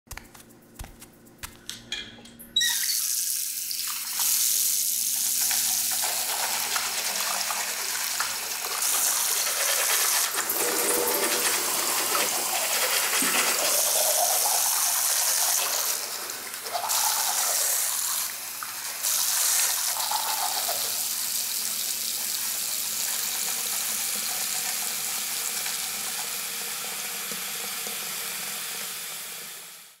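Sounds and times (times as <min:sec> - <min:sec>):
water pouring into sink: 0:03.3 - 0:21.8.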